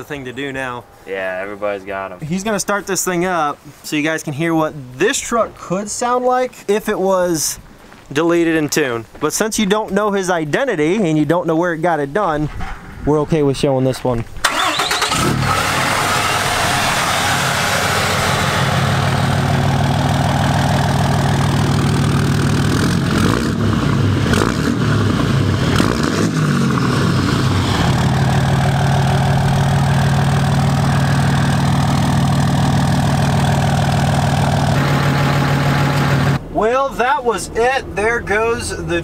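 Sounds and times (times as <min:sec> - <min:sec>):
diesel truck engine idling and revving: 0:14.4 - 0:36.4.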